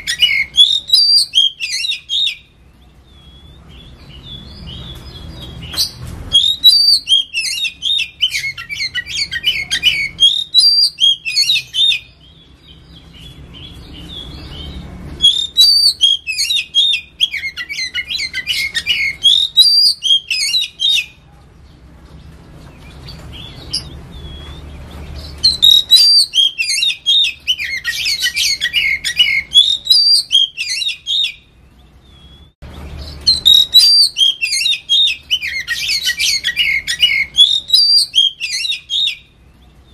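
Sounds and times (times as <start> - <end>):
bird singing chirps and whistles: 0.0 - 21.2, 23.0 - 39.9.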